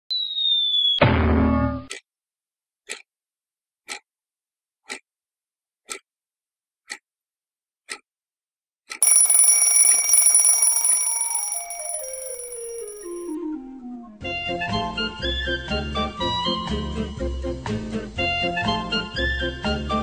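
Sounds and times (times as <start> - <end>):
alarm clock ringing: 9.0 - 13.4
alarm clock ticking: 9.0 - 13.4.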